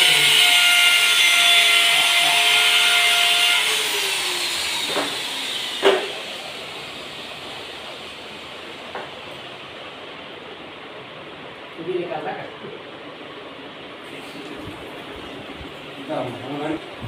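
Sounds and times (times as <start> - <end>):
electric drill whining: 0.0 - 7.8.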